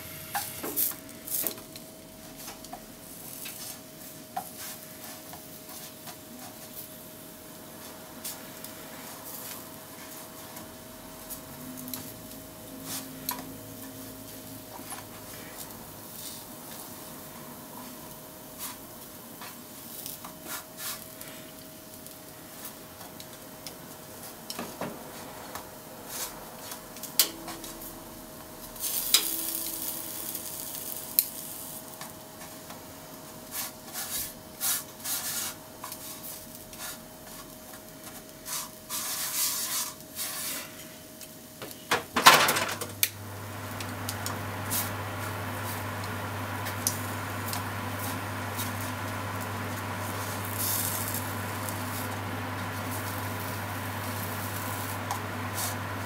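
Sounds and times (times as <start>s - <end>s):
meat sizzling in a frying pan: 0.0s - 24.6s, 25.8s - 41.6s, 43.4s - 56.0s
chopsticks clicking on a pan: 29.1s - 29.4s.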